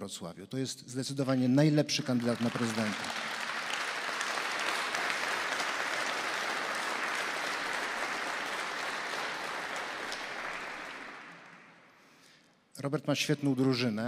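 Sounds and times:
audience applauding: 0:02.0 - 0:12.0.

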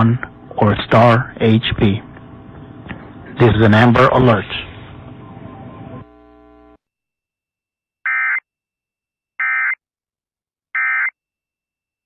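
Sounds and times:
faint buzz: 0:04.5 - 0:06.8.

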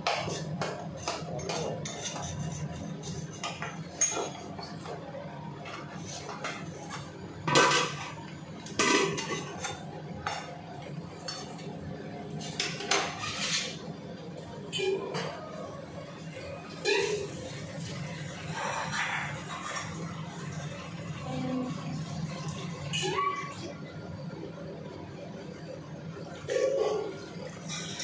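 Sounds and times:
metal spatula scraping a pan: 0:00.0 - 0:04.4, 0:12.6 - 0:13.8.

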